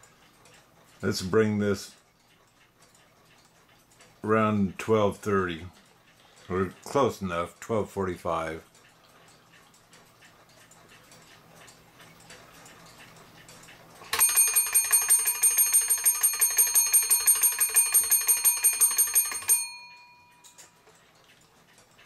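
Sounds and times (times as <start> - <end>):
faint clock clicks: 0.0 - 22.0
clock alarm bell ringing rapidly: 14.1 - 20.8.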